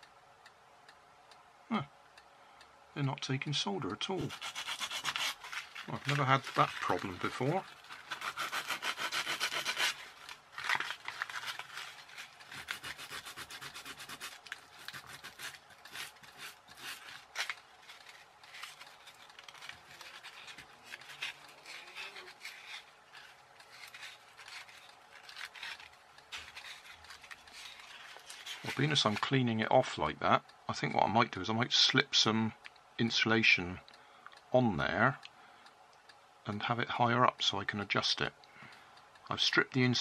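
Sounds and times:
abrasive paper scratching wire: 4.2s - 29.4s.

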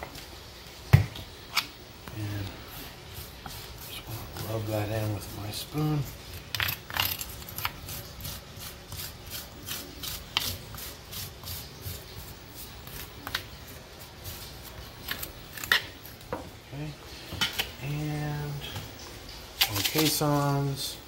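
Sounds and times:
hand rubbing and scraping meat: 1.5s - 16.3s, 19.6s - 20.9s.

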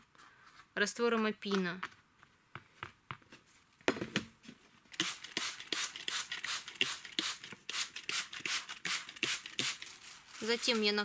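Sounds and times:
spray bottle hissing spritzes: 5.0s - 9.8s.

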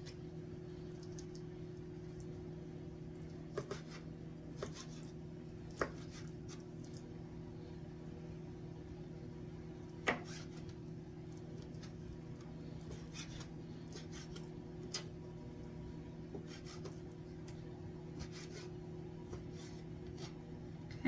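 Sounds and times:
steady low hum: 0.0s - 21.0s
knife on cutting board: 3.6s - 5.1s, 10.0s - 10.6s, 12.9s - 15.1s, 16.3s - 17.0s, 18.2s - 20.4s.

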